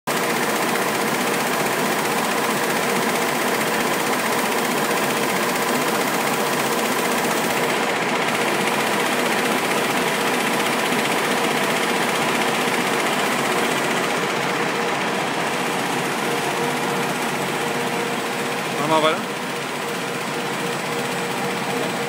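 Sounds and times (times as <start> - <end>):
printing press running: 0.1 - 22.0.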